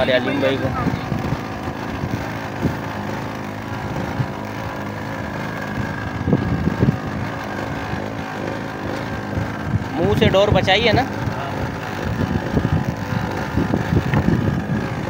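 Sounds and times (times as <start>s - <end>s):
boat engine running: 0.0s - 15.0s.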